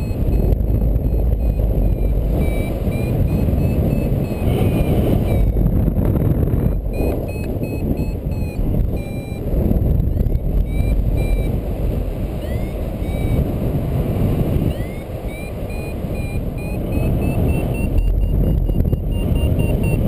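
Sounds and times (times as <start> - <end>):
variometer beeping: 0.0 - 20.0
wind noise on microphone: 0.0 - 20.0.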